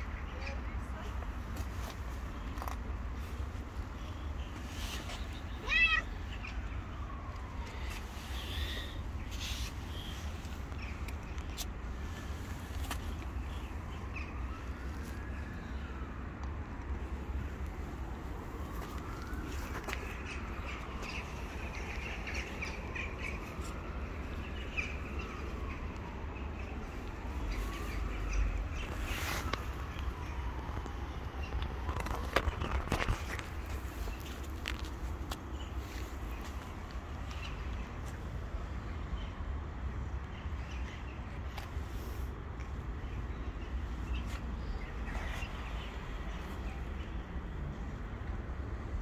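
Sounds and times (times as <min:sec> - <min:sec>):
street noise rumble: 0:00.0 - 0:49.0
cat meowing: 0:05.6 - 0:06.1.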